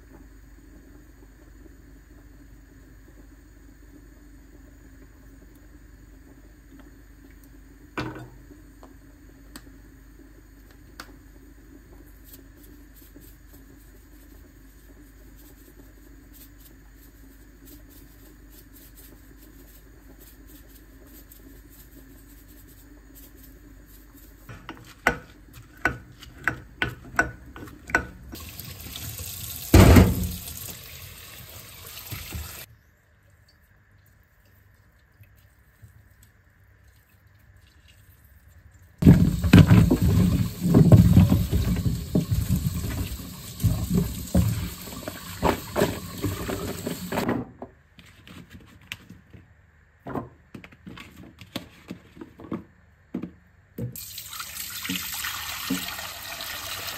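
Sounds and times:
tap running water into sink: 26.9s - 32.7s, 39.0s - 47.2s, 53.9s - 56.9s
loud thud: 29.7s - 30.4s.

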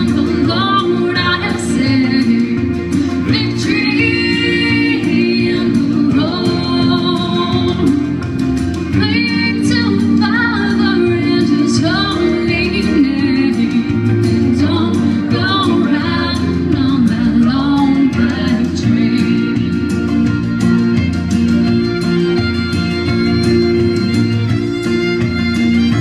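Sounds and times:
woman singing into microphone: 0.0s - 20.4s
guitar accompaniment: 0.0s - 26.0s.

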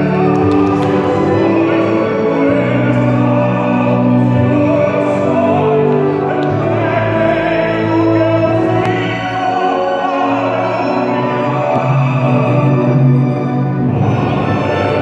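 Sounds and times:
mixed choir singing: 0.0s - 15.0s
tenor singing operatically: 0.0s - 15.0s
violins: 0.0s - 15.0s.

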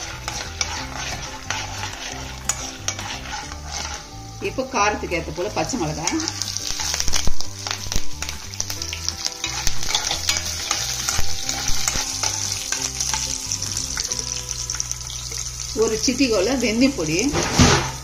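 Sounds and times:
spatula scraping a pan: 0.0s - 14.1s
food sizzling in hot oil: 0.0s - 18.0s.

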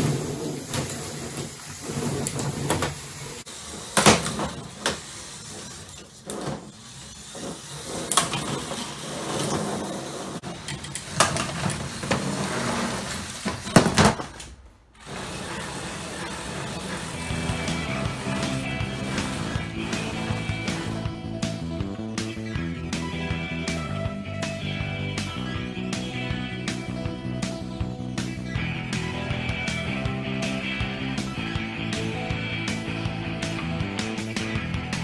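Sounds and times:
small electric motors whirring: 0.6s - 13.6s, 15.0s - 21.0s.

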